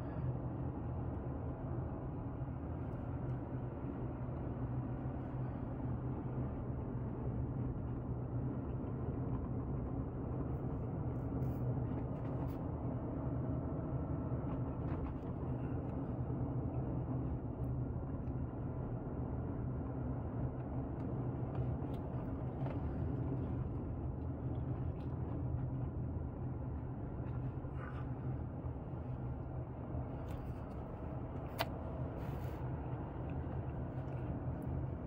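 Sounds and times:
car engine and tyre noise: 0:19.1 - 0:35.0.

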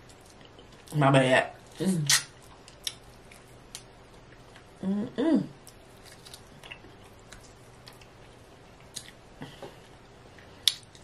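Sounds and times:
person chewing: 0:02.1 - 0:04.8, 0:05.6 - 0:11.0
hum-like vocal sound: 0:04.8 - 0:05.6.

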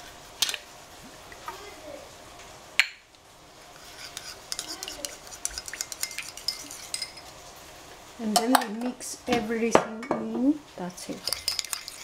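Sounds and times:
spoon clinking ceramic bowl: 0:04.5 - 0:07.2, 0:11.2 - 0:12.0.

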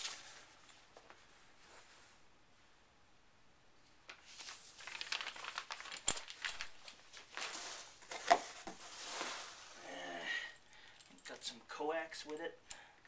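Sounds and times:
rustling packing peanuts and plastic: 0:04.2 - 0:10.6.

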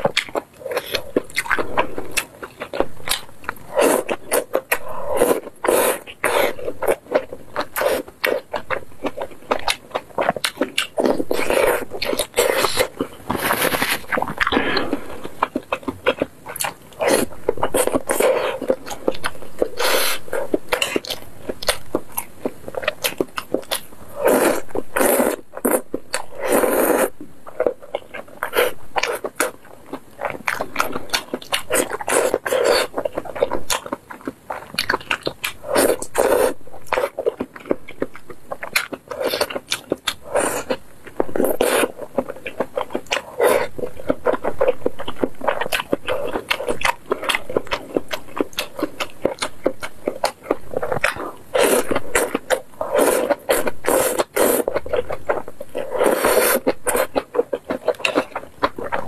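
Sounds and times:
person chewing: 0:00.0 - 0:59.0
person slurping noodles: 0:03.7 - 0:06.7, 0:19.6 - 0:21.0, 0:24.1 - 0:27.1, 0:35.6 - 0:36.6, 0:51.6 - 0:54.7, 0:55.8 - 0:57.1.

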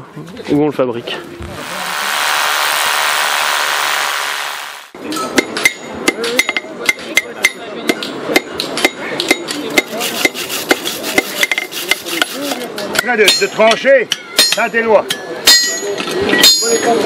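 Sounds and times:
electric drill running: 0:01.6 - 0:05.0
hammers striking iron on anvil: 0:05.4 - 0:10.8, 0:12.9 - 0:15.8.

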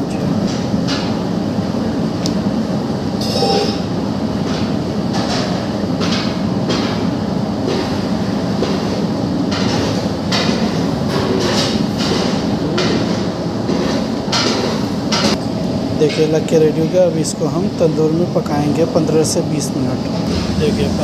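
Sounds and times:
mechanical rumble: 0:20.0 - 0:21.0.

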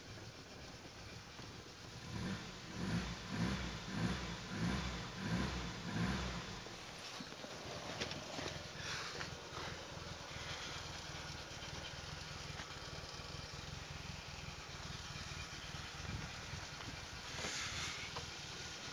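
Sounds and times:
car engine idling: 0:00.0 - 0:18.9
rustling: 0:06.8 - 0:11.5.

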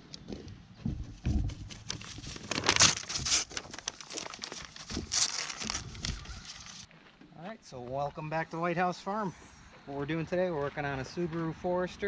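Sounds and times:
paper crinkling and tearing: 0:01.5 - 0:06.9.

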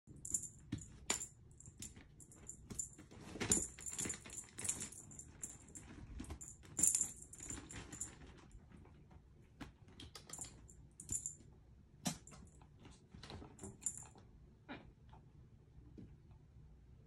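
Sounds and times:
small bell jingling: 0:00.2 - 0:08.2, 0:10.3 - 0:11.4.

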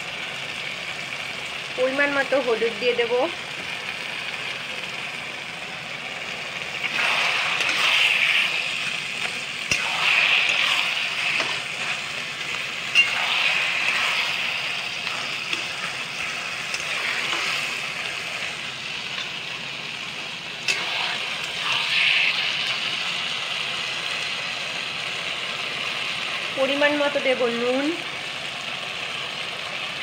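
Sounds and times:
leaves sizzling in hot oil: 0:00.0 - 0:30.0
metal spatula stirring: 0:06.8 - 0:19.4.

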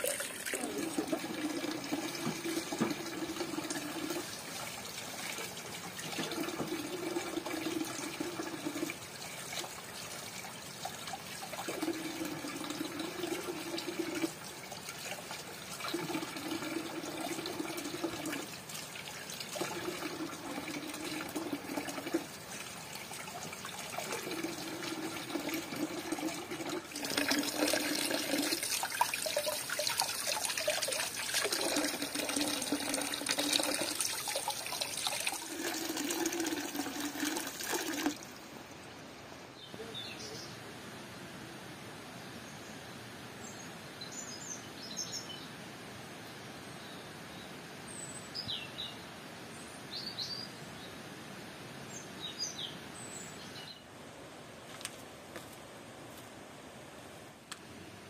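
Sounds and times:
tap water splashing into basin: 0:00.0 - 0:04.4, 0:05.2 - 0:09.0, 0:23.3 - 0:38.2.

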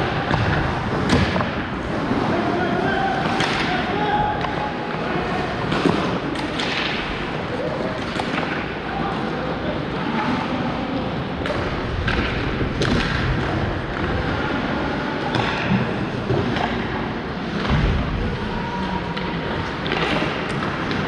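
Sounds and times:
hockey sticks clacking on puck: 0:00.0 - 0:09.2, 0:11.4 - 0:14.4, 0:15.2 - 0:17.9, 0:19.1 - 0:21.0.

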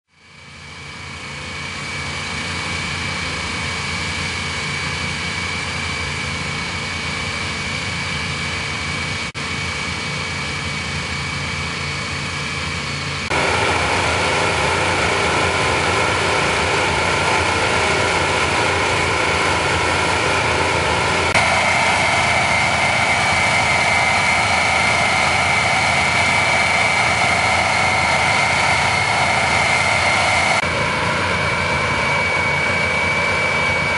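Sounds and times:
high whine: 0:00.4 - 0:33.9
small petrol engines running: 0:04.0 - 0:30.7.

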